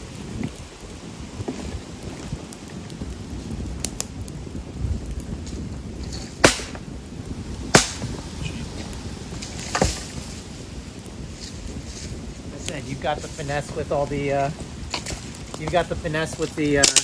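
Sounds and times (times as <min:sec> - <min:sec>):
wind rumble on microphone: 0:00.0 - 0:17.0
dead sticks snapping: 0:06.4 - 0:06.8, 0:07.7 - 0:08.0.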